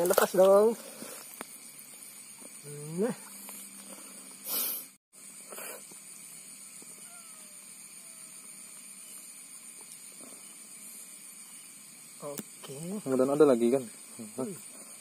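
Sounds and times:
short hissing rustles: 0:03.3 - 0:06.4
faint gliding calls: 0:06.6 - 0:09.2.

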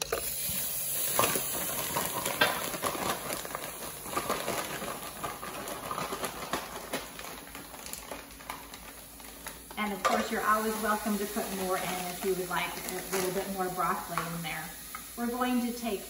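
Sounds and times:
plastic bag crinkling: 0:00.0 - 0:14.8
frozen vegetables dropping into pot: 0:01.0 - 0:13.5.

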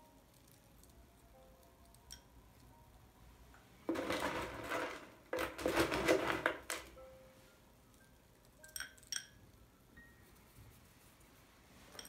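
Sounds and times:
glass clinks: 0:08.6 - 0:09.4.

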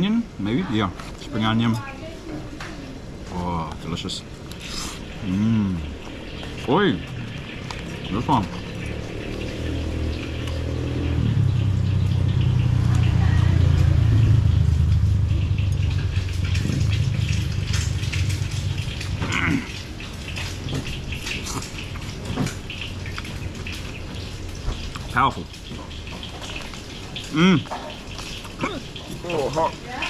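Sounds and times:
vehicle engine passing: 0:05.1 - 0:21.3.

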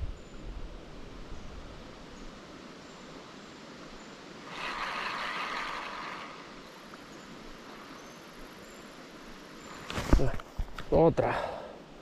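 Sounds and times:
river water rushing: 0:02.5 - 0:09.8.

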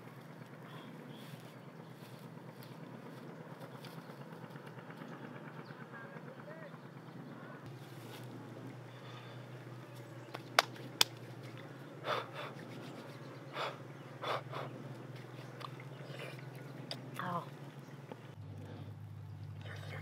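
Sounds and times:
steady low hum: 0:00.0 - 0:20.0
soft breathy eating sounds: 0:11.5 - 0:17.2, 0:18.4 - 0:20.0.

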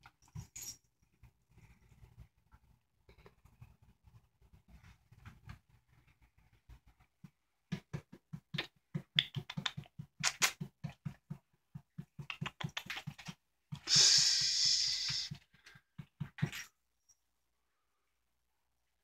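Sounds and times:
cat knocking and tapping: 0:07.2 - 0:13.9, 0:16.0 - 0:16.6.

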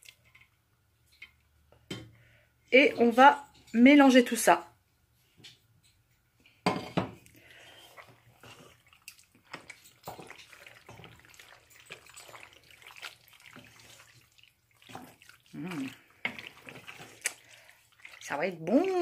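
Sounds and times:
spoon stirring thick sauce: 0:07.2 - 0:19.0.

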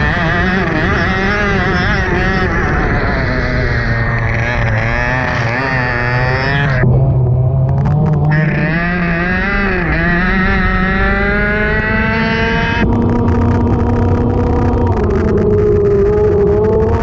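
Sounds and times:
kart engine revving: 0:00.0 - 0:17.0.

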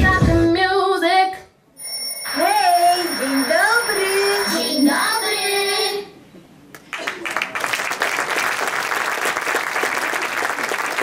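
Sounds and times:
audience applause: 0:06.8 - 0:11.0.

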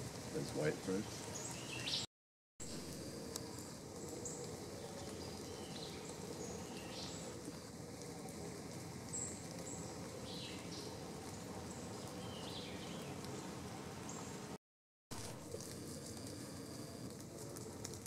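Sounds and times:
songbirds chirping and whistling: 0:00.4 - 0:02.1, 0:03.5 - 0:07.6, 0:08.6 - 0:14.5.

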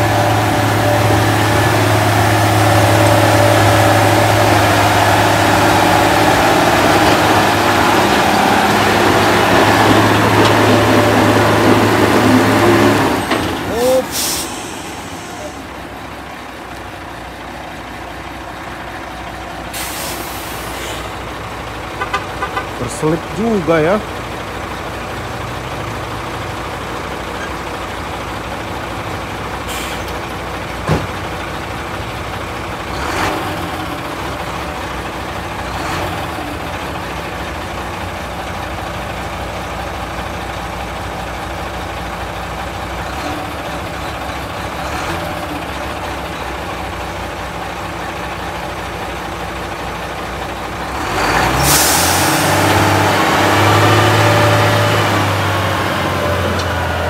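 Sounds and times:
truck diesel engine running: 0:00.0 - 0:57.0
air brake hissing: 0:14.0 - 0:15.6, 0:19.7 - 0:21.1, 0:29.7 - 0:30.2, 0:51.6 - 0:52.6.

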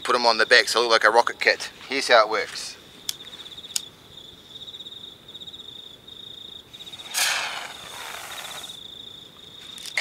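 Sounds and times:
crickets chirping: 0:00.0 - 0:10.0
firecracker hissing fizz: 0:06.8 - 0:08.8.

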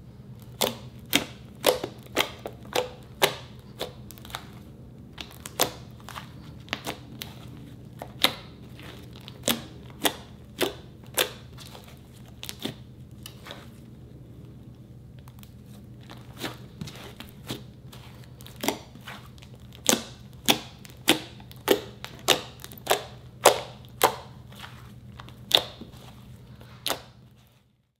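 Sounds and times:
steady low hum: 0:00.0 - 0:27.9
slime air pockets popping: 0:00.4 - 0:13.7.

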